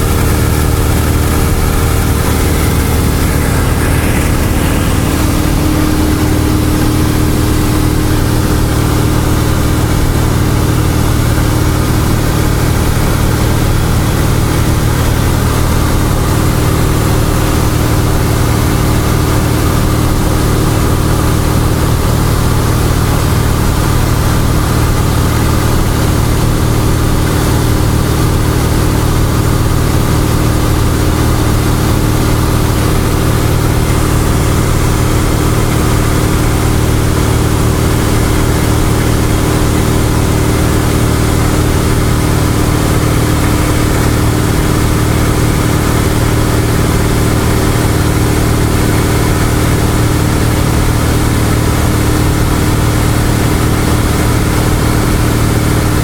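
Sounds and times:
airplane engine and propeller: 0.0s - 56.0s.

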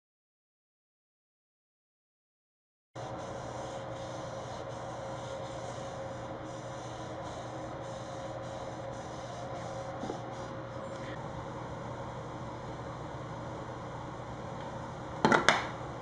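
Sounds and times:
cloth rag rubbing on wood: 3.0s - 10.6s
steady background hum: 3.0s - 16.0s.

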